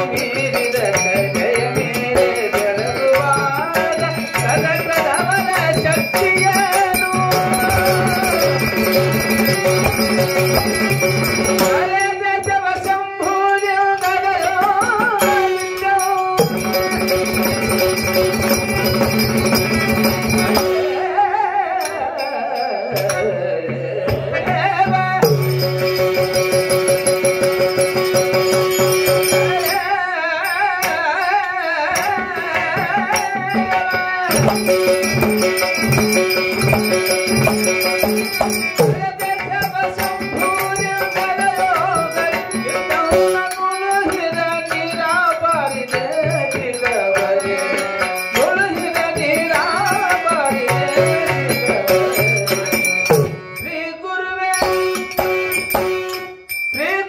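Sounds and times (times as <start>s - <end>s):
man singing through microphone: 0.0s - 27.4s, 28.4s - 55.5s, 56.8s - 57.0s
tabla strokes: 0.0s - 30.0s, 30.7s - 53.8s
harmonium chords: 34.0s - 57.0s.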